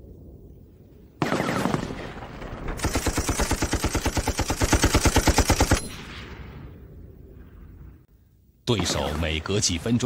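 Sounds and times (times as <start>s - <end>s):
machine gun burst: 2.8s - 5.9s.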